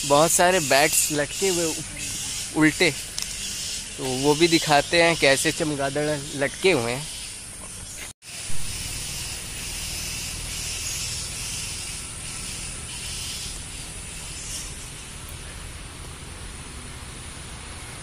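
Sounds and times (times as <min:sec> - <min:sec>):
outdoor background hiss: 0:00.0 - 0:18.0.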